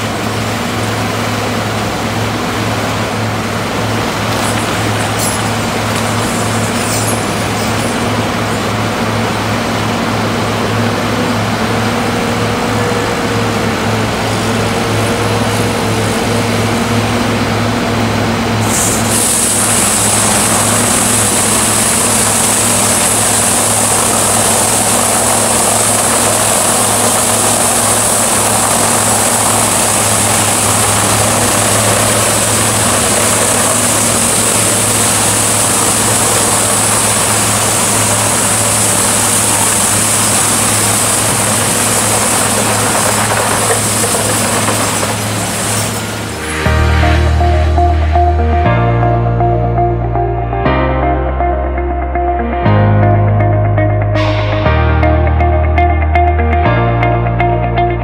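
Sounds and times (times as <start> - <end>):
engine drone: 0.0 - 58.0
high hiss: 4.1 - 8.7, 18.6 - 48.5
flail chains thrashing trees: 4.3 - 8.6.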